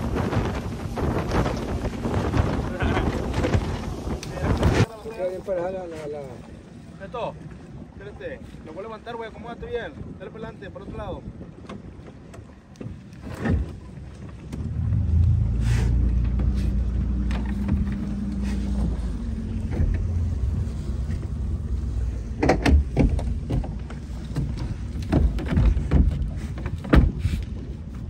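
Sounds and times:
outboard motor running: 11.4s - 28.0s
sharp thumps and knocks: 22.4s - 27.3s.

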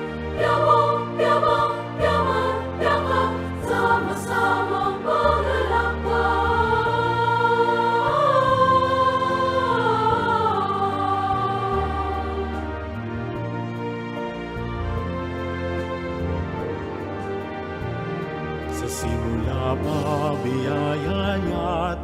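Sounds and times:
choir singing slow melody: 0.0s - 13.6s.

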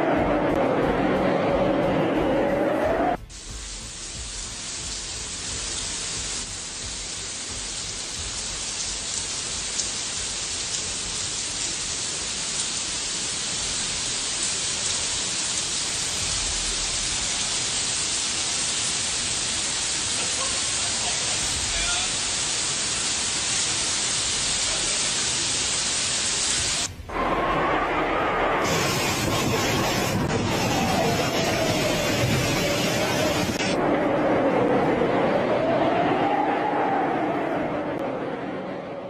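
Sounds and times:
loud busy sound: 0.0s - 4.3s, 26.8s - 39.0s
heavy rain falling: 0.0s - 38.1s.

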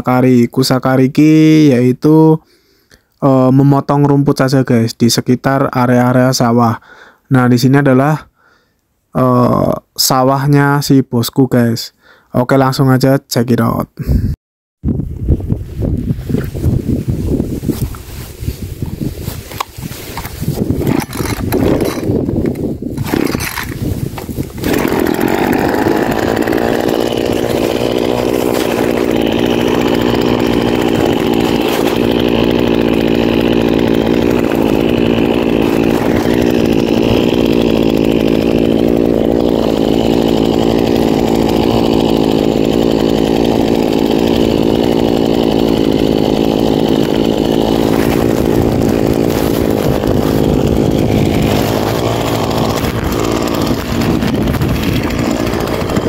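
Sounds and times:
brush cutter engine running: 16.0s - 56.0s.

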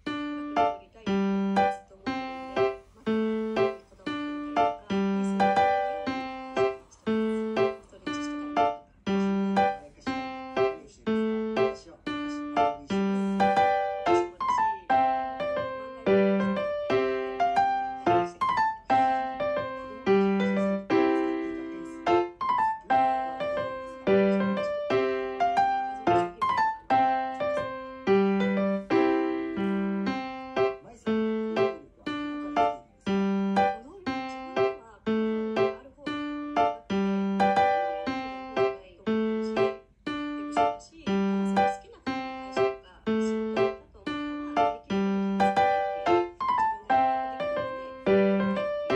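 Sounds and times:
light piano tune: 0.0s - 48.9s.

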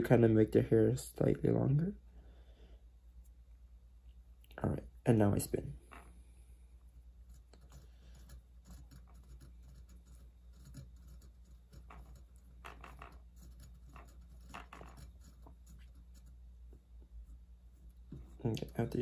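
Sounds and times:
spinner tool scratching and ticking: 6.8s - 19.0s.

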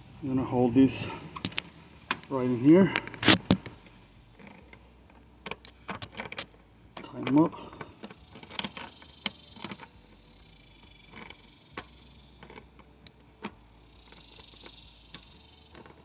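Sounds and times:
hose fittings clicking and knocking: 4.4s - 9.9s.

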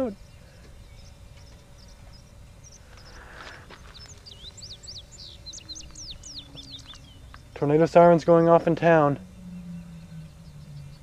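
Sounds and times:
low outdoor rumble: 0.0s - 11.0s
songbird chirping: 0.0s - 11.0s
distant tornado siren wailing: 3.9s - 11.0s.

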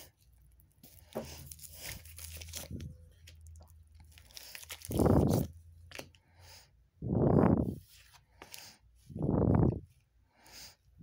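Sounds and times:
cards being shuffled: 0.8s - 6.1s.

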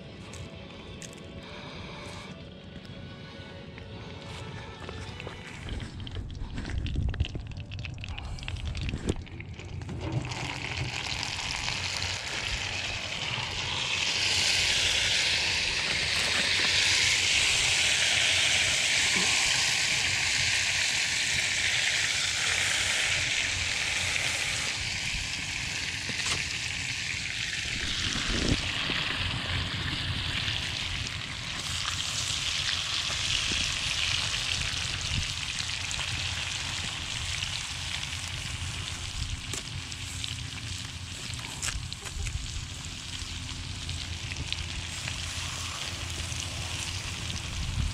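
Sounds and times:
fish sizzling in a skillet: 10.2s - 47.9s.

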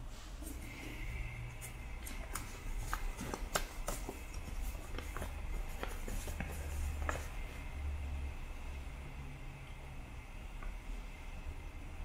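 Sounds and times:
stiff paper crackling: 2.0s - 7.4s.

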